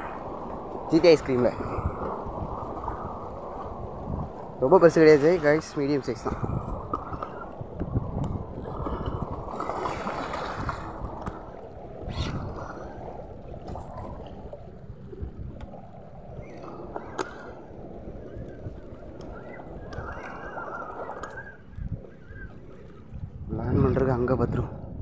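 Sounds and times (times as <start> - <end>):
wind buffeting microphone: 0.0 - 25.0
water washing against rocks: 8.8 - 11.4.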